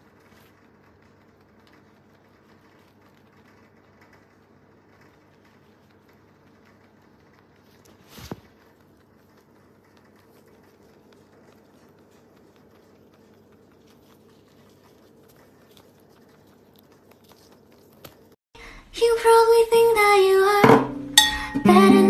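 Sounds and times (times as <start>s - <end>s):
rabbit chewing crunchy food: 0.0s - 18.4s
thump: 20.6s - 21.0s.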